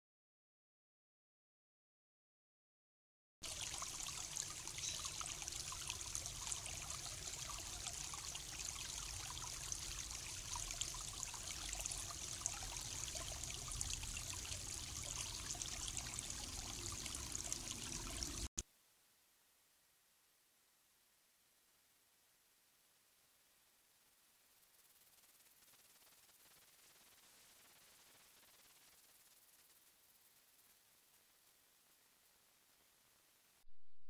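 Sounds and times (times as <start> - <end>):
creek trickling over stones: 3.4 - 18.6.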